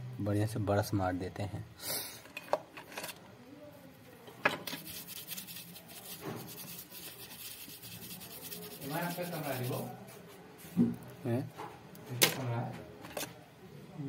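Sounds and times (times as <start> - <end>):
brush scrubbing circuit board: 4.7 - 10.0.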